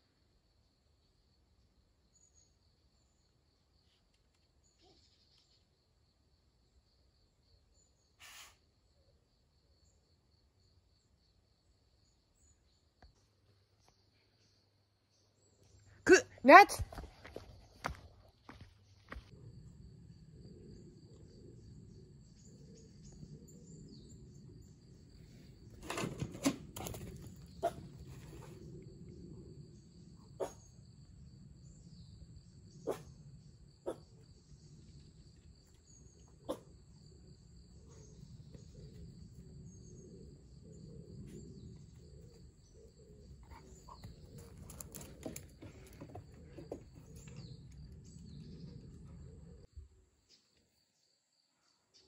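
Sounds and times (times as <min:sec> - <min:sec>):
knocks and scuffs: 0:16.8 - 0:19.3.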